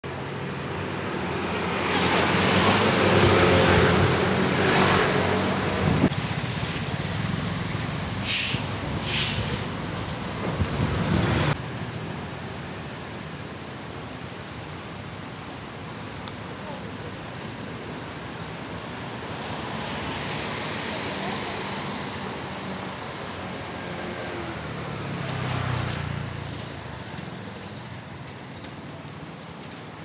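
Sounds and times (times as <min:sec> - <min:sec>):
tyres on wet road: 0:00.1 - 0:30.0
short hisses: 0:08.2 - 0:09.7.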